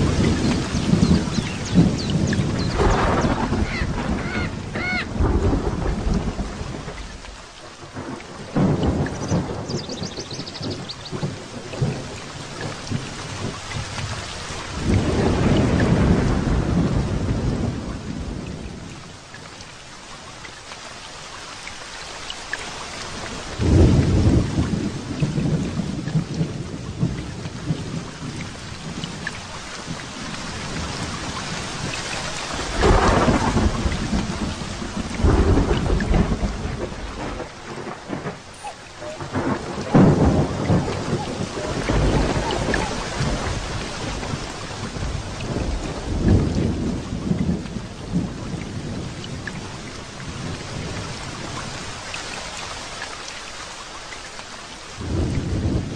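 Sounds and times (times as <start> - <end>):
thunder rolling: 0.0 - 7.2, 14.8 - 18.7, 23.6 - 29.2, 32.5 - 49.2, 55.0 - 55.9
rain hissing: 0.0 - 55.9.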